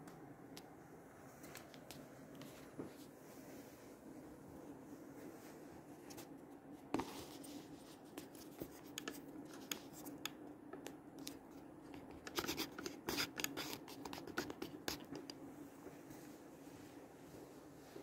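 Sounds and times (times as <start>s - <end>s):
low steady hum: 0.0s - 18.0s
handling scratches and clicks: 7.0s - 15.4s.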